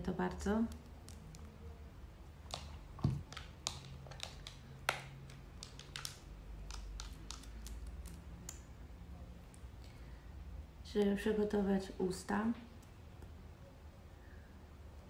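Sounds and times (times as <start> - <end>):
makeup packaging clicks: 0.7 - 1.5, 2.4 - 8.6.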